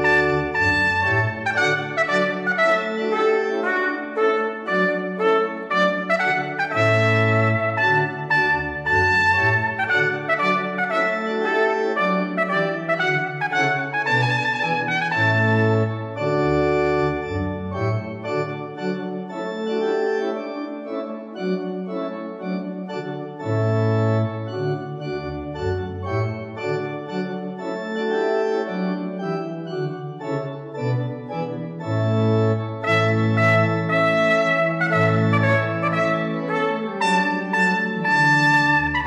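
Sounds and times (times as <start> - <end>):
organ chords: 0.0 - 39.0.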